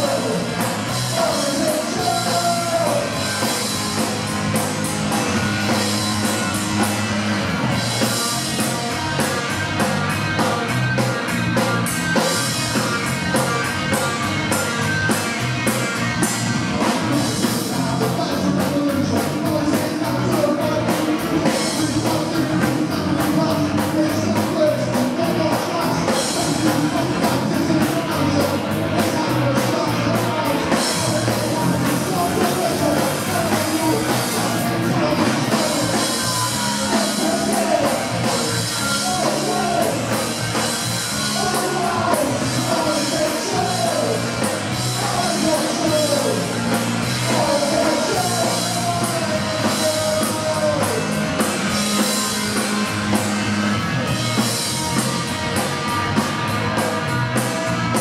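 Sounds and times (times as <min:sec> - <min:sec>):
person singing: 0:00.0 - 0:04.2, 0:16.8 - 0:40.6, 0:41.2 - 0:51.3
punk rock band playing: 0:00.0 - 0:58.0.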